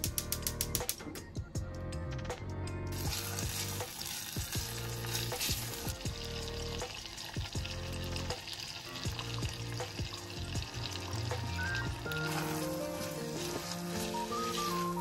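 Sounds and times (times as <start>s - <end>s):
bacon sizzling in pan: 2.9s - 15.0s
spatula scraping pan: 12.1s - 15.0s.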